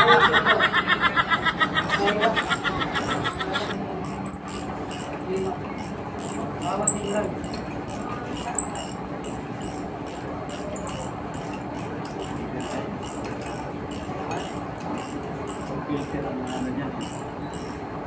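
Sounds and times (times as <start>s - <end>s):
steady low hum: 1.0s - 18.0s
wrench clicking: 2.4s - 17.8s.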